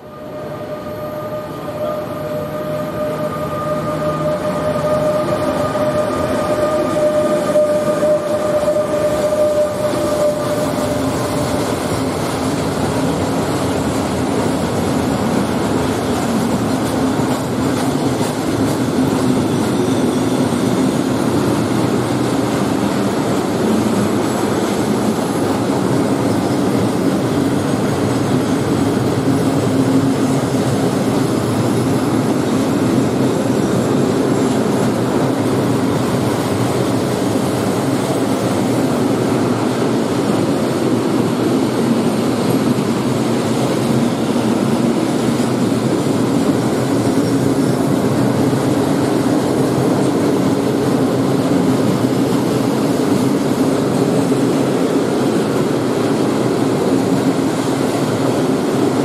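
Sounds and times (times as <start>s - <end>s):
locomotive high tone: 0.0s - 27.0s.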